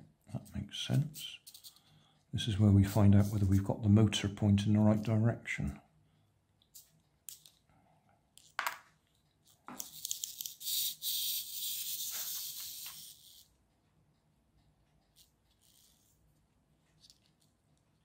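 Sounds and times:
clockwork motor whirring: 0:10.0 - 0:13.5.

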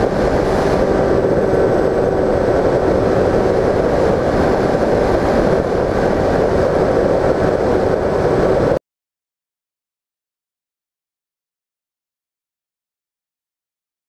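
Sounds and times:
wind rushing: 0:00.0 - 0:08.8.

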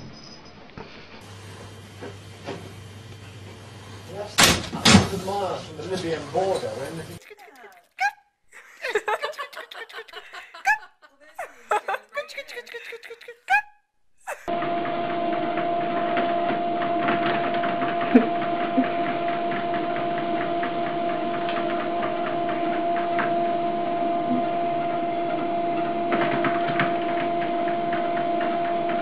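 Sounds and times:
treadmill motor hum: 0:14.5 - 0:29.0.

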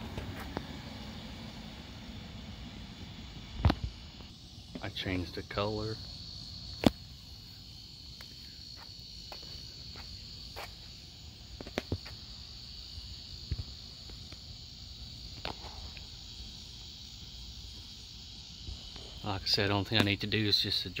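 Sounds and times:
crickets chirring: 0:00.0 - 0:21.0.

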